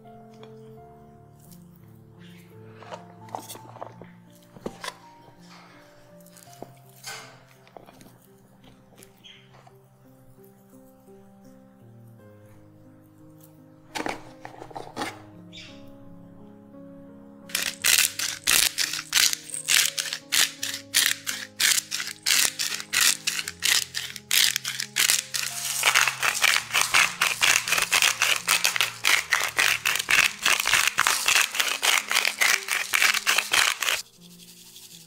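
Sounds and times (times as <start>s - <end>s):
quiet background music: 0.0s - 35.0s
spice shaker rattling: 17.5s - 35.0s.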